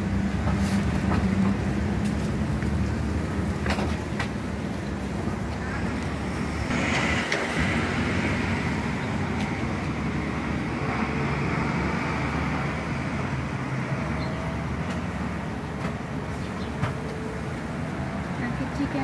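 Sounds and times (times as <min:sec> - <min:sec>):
low engine hum: 0:00.0 - 0:19.0
road noise: 0:00.0 - 0:19.0
vehicle passing: 0:04.6 - 0:16.7.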